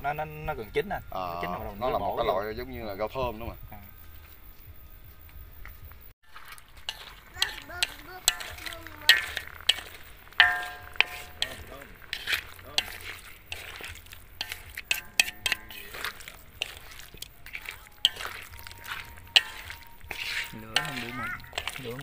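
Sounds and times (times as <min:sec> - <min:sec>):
light frying sizzle: 0:06.2 - 0:22.0
utensil scraping a pan: 0:06.3 - 0:22.0.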